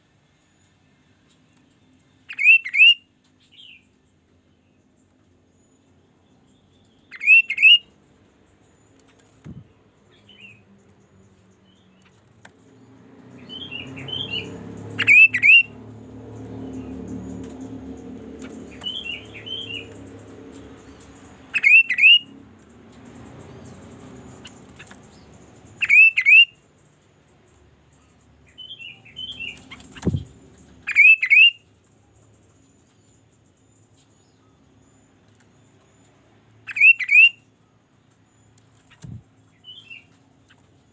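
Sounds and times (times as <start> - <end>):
bird whistling calls: 2.3 - 3.0, 7.1 - 7.8, 13.5 - 15.7, 21.5 - 22.3, 25.8 - 26.5, 30.9 - 31.6, 36.7 - 37.4.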